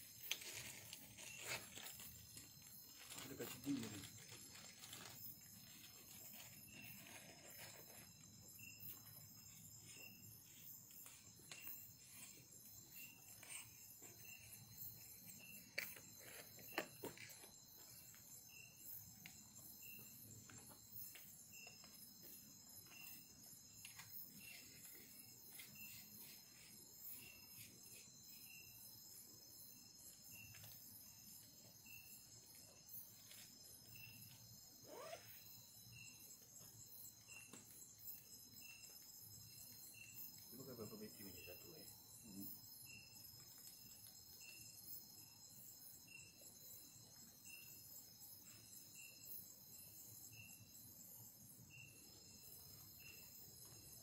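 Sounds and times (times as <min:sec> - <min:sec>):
night insect chorus trilling: 0:00.0 - 0:54.0.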